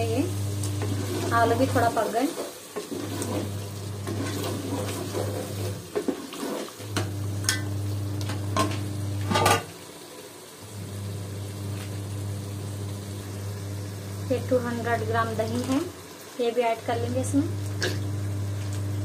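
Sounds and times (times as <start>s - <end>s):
food frying: 0.0s - 19.0s
wooden spoon scraping pot: 0.7s - 7.0s.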